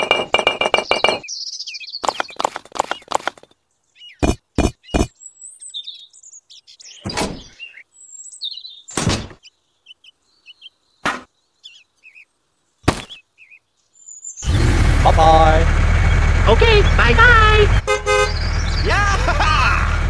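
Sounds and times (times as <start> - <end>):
birds chirping softly: 0.0 - 14.6, 18.0 - 19.2
toy pieces knocking: 2.0 - 3.5.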